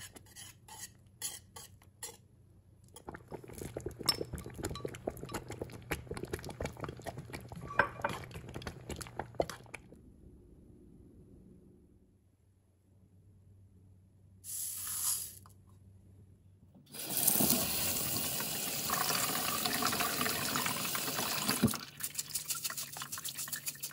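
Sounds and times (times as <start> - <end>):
chopsticks scraping pot: 0.0 - 2.2
low steady hum: 2.3 - 14.5
whisk clinking against steel pot: 4.0 - 6.1.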